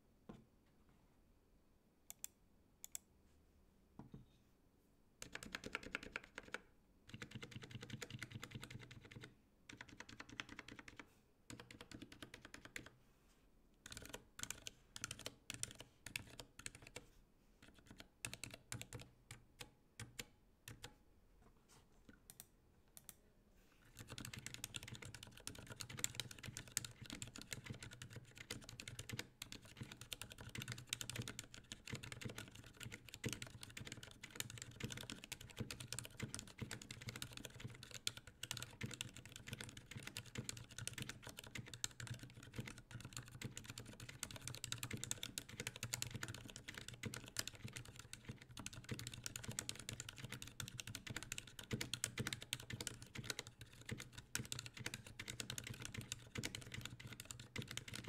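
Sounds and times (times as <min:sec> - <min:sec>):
quiet keyboard typing: 0:02.1 - 0:03.1, 0:05.2 - 0:13.0, 0:13.8 - 0:21.0, 0:22.1 - 0:23.2, 0:23.8 - 0:58.0.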